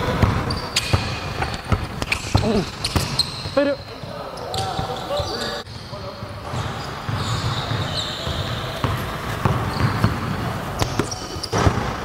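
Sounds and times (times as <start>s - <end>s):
sneakers squeaking: 0.0s - 12.0s
basketball bouncing on wooden floor: 0.1s - 3.6s, 6.3s - 12.0s.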